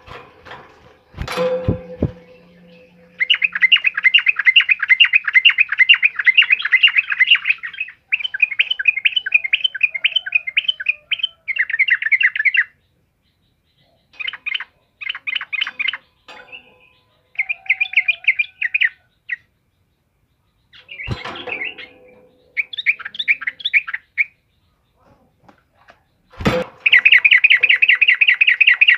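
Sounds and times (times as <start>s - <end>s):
sharp thump: 0.1s - 3.8s, 21.1s - 22.2s, 26.4s - 27.0s
bird chirping song: 0.8s - 28.9s.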